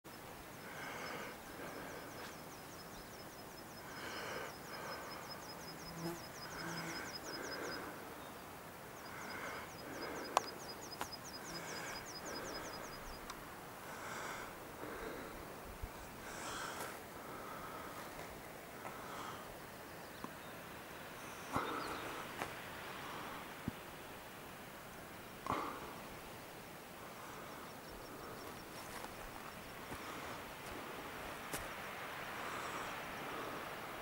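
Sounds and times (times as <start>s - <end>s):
rustling hiss: 0.1s - 34.0s
insect ticking trill: 3.1s - 7.8s.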